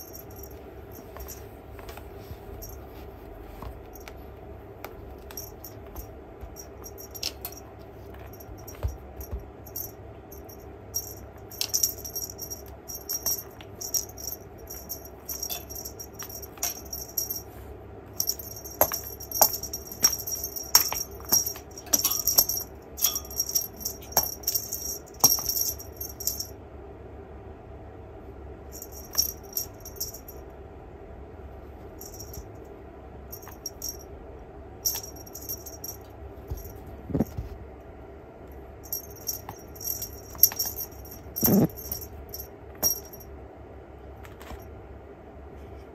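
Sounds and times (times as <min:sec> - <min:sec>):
cat toy jingling and rattling: 0:00.0 - 0:04.3, 0:05.0 - 0:17.6, 0:18.2 - 0:26.5, 0:28.7 - 0:30.4, 0:32.0 - 0:32.5, 0:33.3 - 0:34.0, 0:34.8 - 0:37.5, 0:38.8 - 0:43.2.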